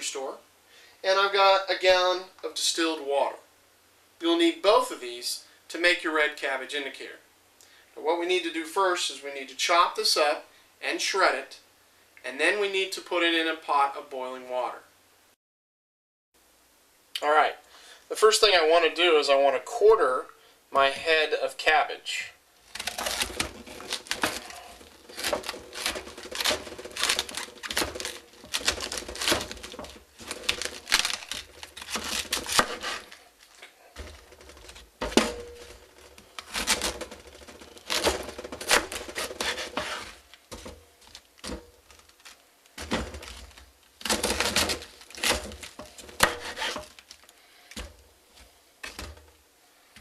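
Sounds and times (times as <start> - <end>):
knife crunching through cabbage: 22.7 - 47.3.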